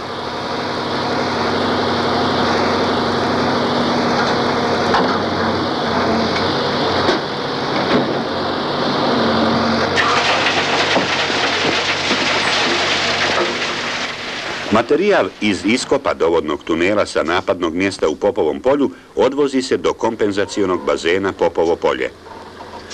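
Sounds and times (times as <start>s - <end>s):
loader diesel engine running: 0.0s - 22.9s
rock rattling into truck bed: 10.0s - 14.7s
bucket scooping rock: 10.0s - 16.1s.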